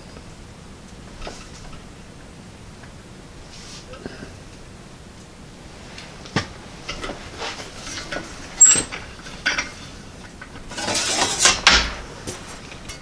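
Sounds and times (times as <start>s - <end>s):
steel sheet scraping rattle: 6.8s - 13.0s
metallic clicks and clunks of roller: 6.9s - 13.0s.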